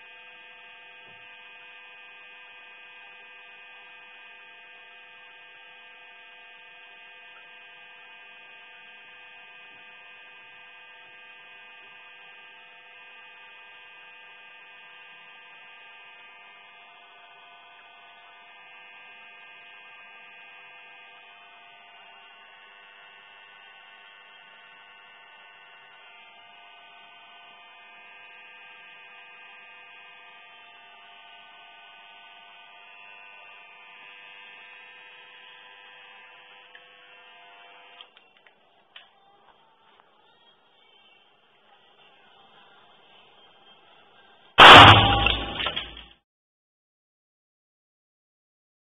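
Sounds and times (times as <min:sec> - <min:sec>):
electrical hum with rough buzz: 0:00.0 - 0:38.2, 0:44.6 - 0:46.1.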